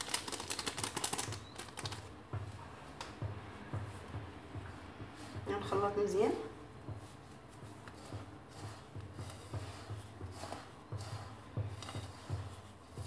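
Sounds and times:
hand rubbing crumbly mixture: 0.0 - 2.6, 7.0 - 13.0.

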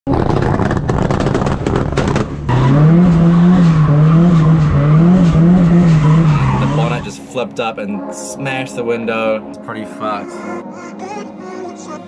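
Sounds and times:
car engine at high revs: 0.1 - 7.2
rattly engine and road noise: 0.1 - 10.6.

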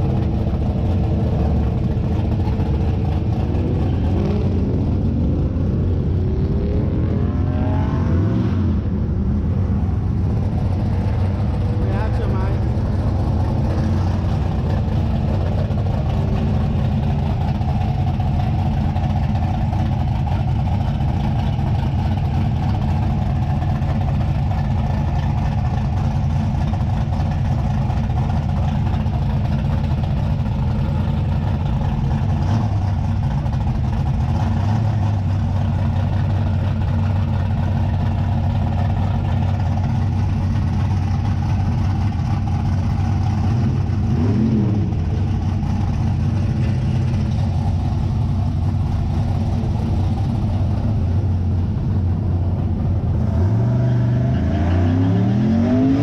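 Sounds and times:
truck engine idling: 0.0 - 6.3, 8.9 - 53.3.

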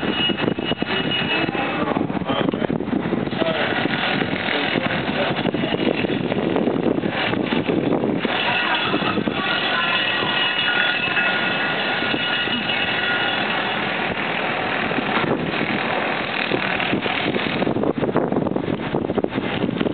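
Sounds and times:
wind buffeting microphone: 0.0 - 19.9
faint high steady tones: 8.3 - 14.0.

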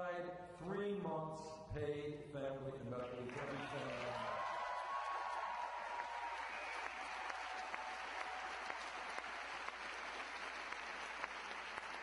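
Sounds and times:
crowd applauding: 3.0 - 12.0.

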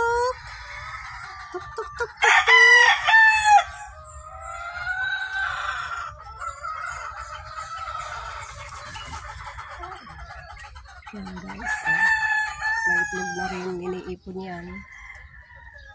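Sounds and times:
chickens clucking: 0.0 - 15.9
rooster crowing: 2.2 - 8.4, 11.6 - 15.9.

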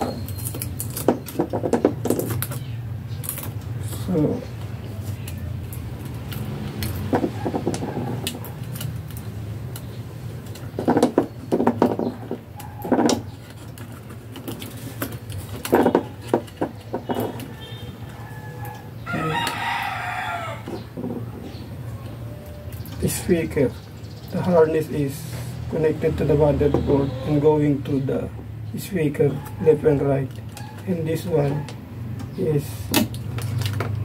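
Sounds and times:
rooster crowing: 17.4 - 20.9.

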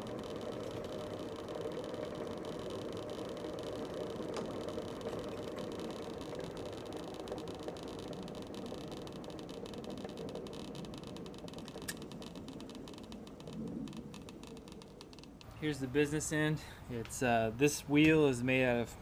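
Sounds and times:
grinder drum whirring: 0.0 - 16.3.

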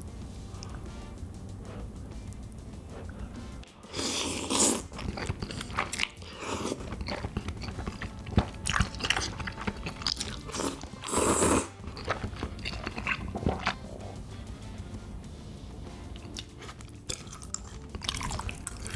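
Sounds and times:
chewing and mouth sounds: 1.6 - 14.6, 15.9 - 18.9
person slurping noodles: 2.8 - 14.4, 16.1 - 18.9.

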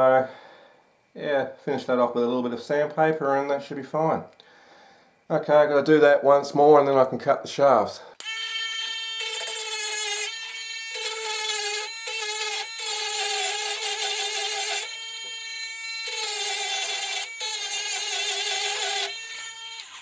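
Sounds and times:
rotary tool grinding metal: 8.2 - 20.0.

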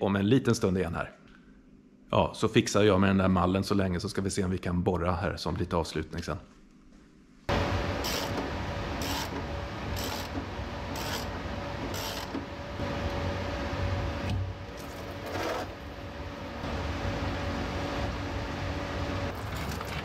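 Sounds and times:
workshop hum: 0.0 - 20.0.

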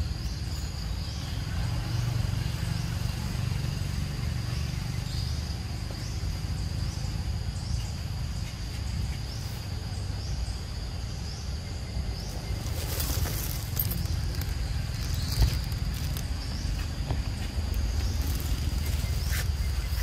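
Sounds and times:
continuous low rumble: 0.0 - 20.0.

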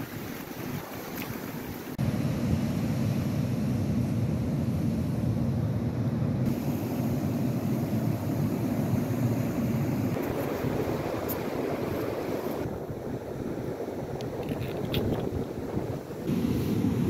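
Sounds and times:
wind rumbling on microphone: 0.0 - 17.0
surf breaking on beach: 6.5 - 14.2.

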